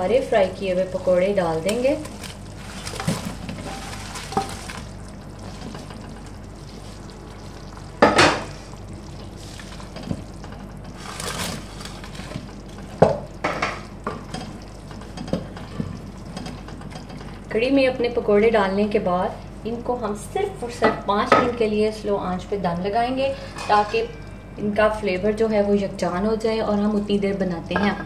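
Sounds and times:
curry bubbling and hissing: 0:00.0 - 0:20.8
wooden spatula stirring in pot: 0:00.9 - 0:17.5.

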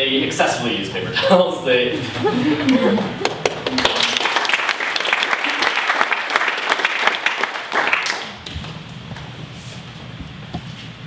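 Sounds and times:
audience applauding: 0:02.7 - 0:08.8.

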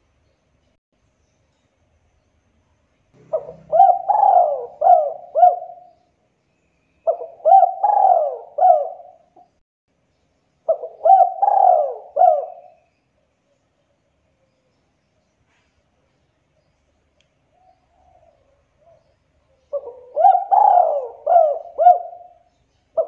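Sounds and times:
dove cooing: 0:03.2 - 0:06.0, 0:07.1 - 0:09.5, 0:10.7 - 0:12.8, 0:17.6 - 0:23.0.

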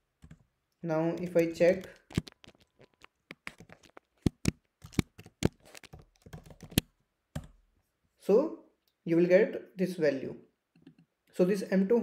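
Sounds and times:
keyboard key clicks: 0:03.3 - 0:07.5.

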